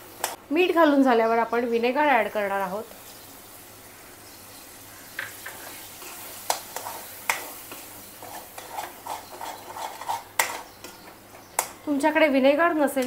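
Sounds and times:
hot oil sizzling: 0:00.0 - 0:13.0
spoon scraping steel pan: 0:05.4 - 0:11.0.

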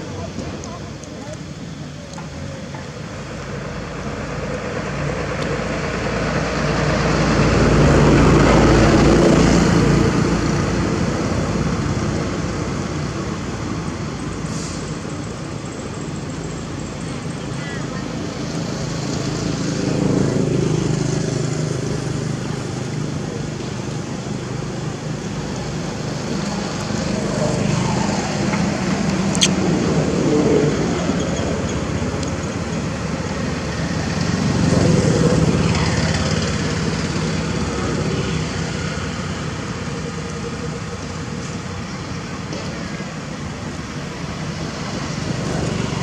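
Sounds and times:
road traffic passing: 0:00.0 - 0:46.0
sharp click: 0:29.3 - 0:29.6.

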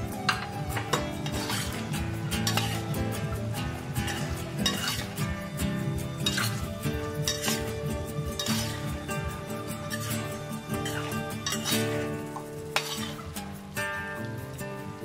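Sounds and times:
background music: 0:00.0 - 0:15.0
food sizzling: 0:00.0 - 0:15.0
spatula scraping a wok: 0:00.1 - 0:14.6.

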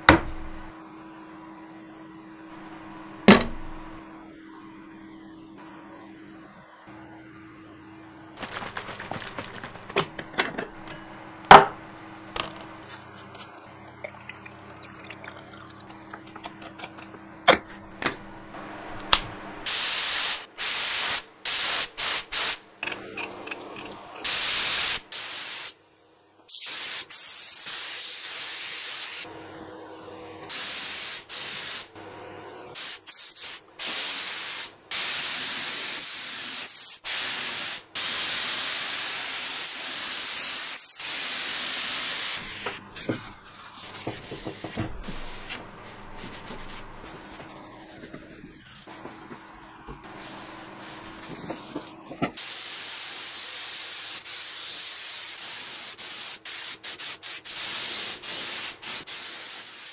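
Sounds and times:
spray gun hissing bursts: 0:19.6 - 0:22.7, 0:24.2 - 0:25.8, 0:26.5 - 0:29.3, 0:30.5 - 0:31.9, 0:32.8 - 0:42.7, 0:43.8 - 0:47.3, 0:50.0 - 0:51.4, 0:52.4 - 0:59.9.

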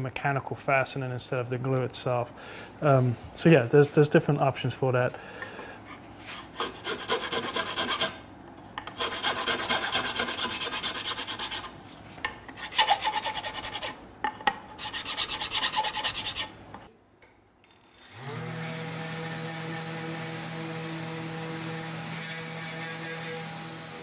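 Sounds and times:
file scraping metal: 0:06.2 - 0:08.2, 0:08.9 - 0:11.8, 0:12.6 - 0:14.0, 0:14.8 - 0:16.6, 0:21.7 - 0:24.0
orbital sander humming: 0:18.1 - 0:24.0.

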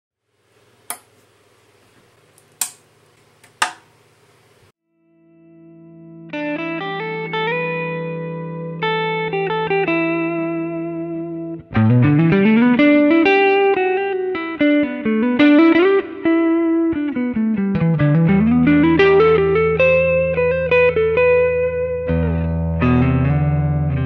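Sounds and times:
electric guitar lead: 0:05.0 - 0:24.0.

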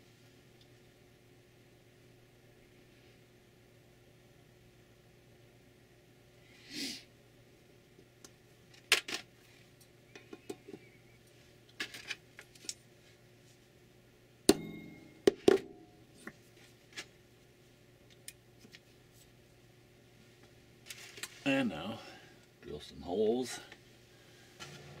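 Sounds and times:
punch strikes on metal: 0:14.5 - 0:15.9.

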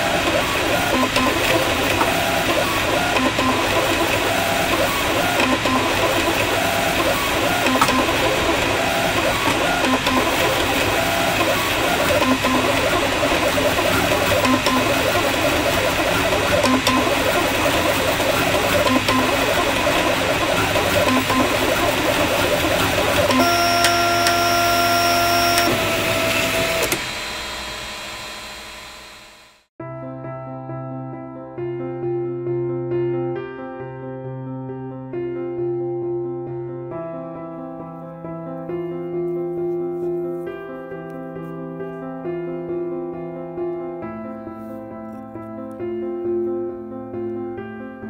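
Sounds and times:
stepper motors whining and buzzing: 0:00.0 - 0:29.7.

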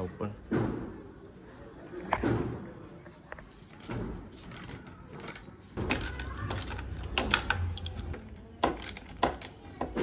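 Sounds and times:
metal parts clicking and knocking: 0:03.6 - 0:10.0.

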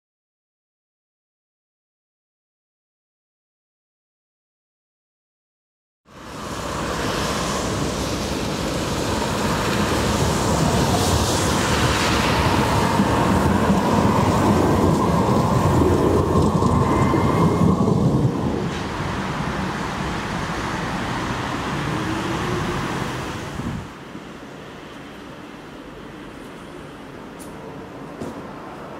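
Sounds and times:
street noise: 0:06.1 - 0:28.9
tram rumbling on rails: 0:06.1 - 0:28.9.

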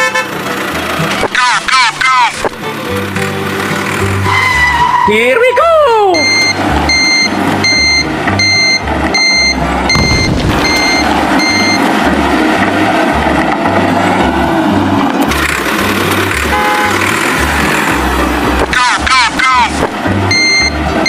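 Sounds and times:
low truck engine rumble: 0:00.0 - 0:21.0
reversing beeper: 0:04.3 - 0:11.9, 0:20.3 - 0:20.8.

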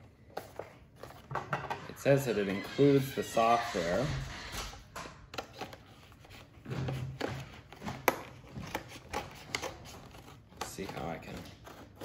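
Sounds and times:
scissors cutting cardboard: 0:05.3 - 0:12.0.

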